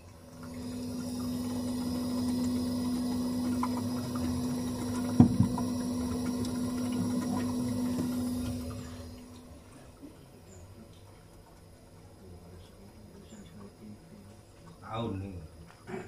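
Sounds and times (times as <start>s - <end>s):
refrigerator motor humming: 0.0s - 10.9s
knock: 5.2s - 5.6s.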